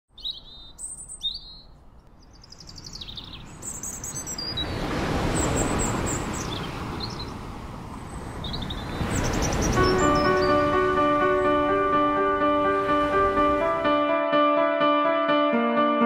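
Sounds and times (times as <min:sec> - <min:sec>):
birds chirping: 0:00.1 - 0:14.0
wave washing on beach: 0:04.2 - 0:14.1.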